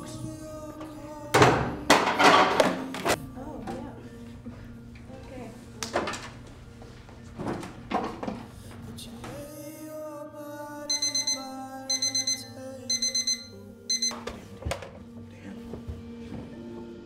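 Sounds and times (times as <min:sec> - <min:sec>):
soft background music: 0:00.0 - 0:17.0
digital alarm clock beeping: 0:10.9 - 0:14.2.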